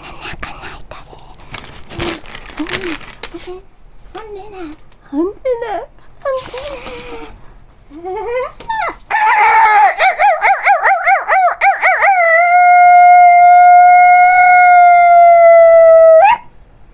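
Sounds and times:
howl-like vocal call: 8.0s - 16.6s.

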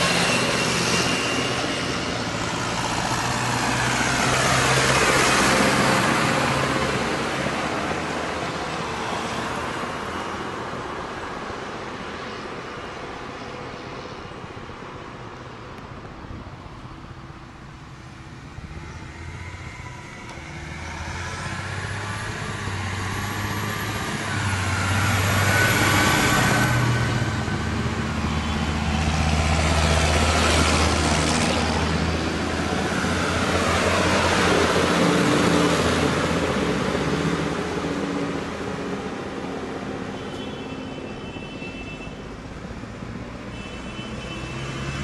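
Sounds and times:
tractors driving past: 0.0s - 40.3s.

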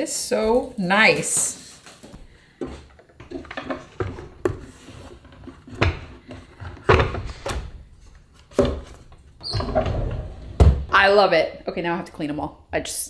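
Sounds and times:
wooden knocks and clunks: 2.6s - 7.8s, 8.5s - 11.0s.

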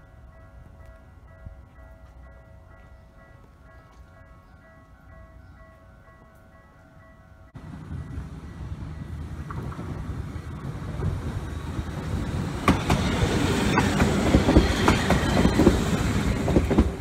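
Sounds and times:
tram passing rumble: 0.0s - 17.0s
wheels clacking over rail joints: 7.6s - 17.0s.

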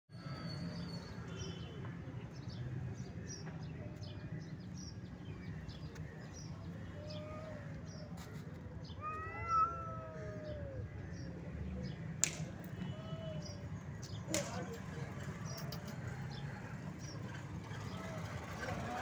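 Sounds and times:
cat meowing: 9.0s - 10.8s.

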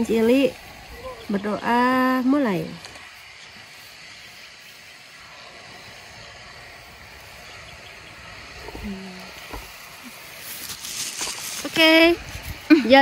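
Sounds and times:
faint outdoor hiss: 0.0s - 13.0s
person humming: 8.7s - 9.5s.

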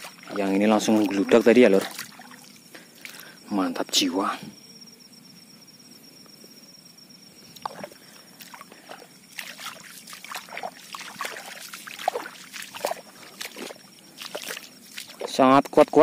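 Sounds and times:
water sloshing from wading: 0.0s - 3.4s, 7.6s - 15.6s.

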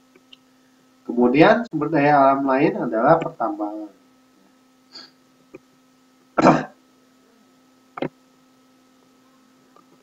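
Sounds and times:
faint electrical hum: 0.0s - 10.0s
person clearing throat: 6.4s - 6.8s.

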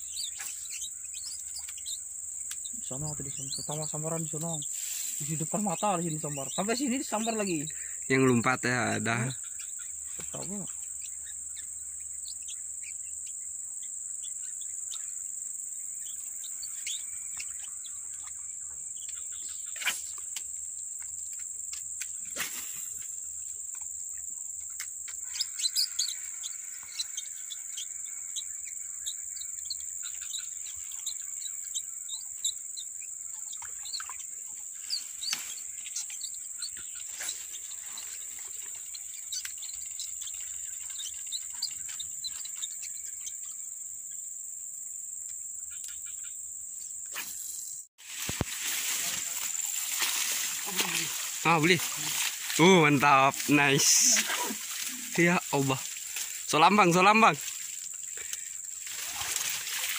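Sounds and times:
bird chirps: 0.0s - 23.0s, 23.7s - 44.3s
insect chorus: 0.0s - 59.9s.

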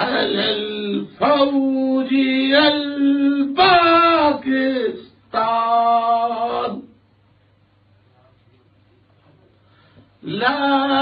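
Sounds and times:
man singing long notes: 0.0s - 6.9s, 10.2s - 11.0s.

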